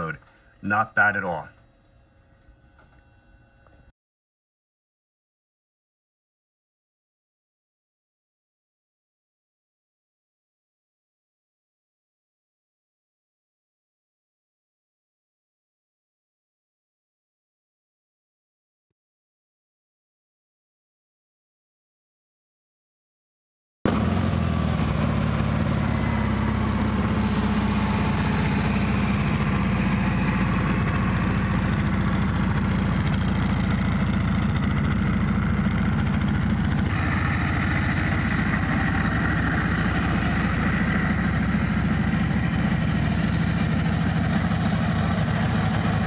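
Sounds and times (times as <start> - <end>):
motorcycle engine idling: 23.9 - 46.0.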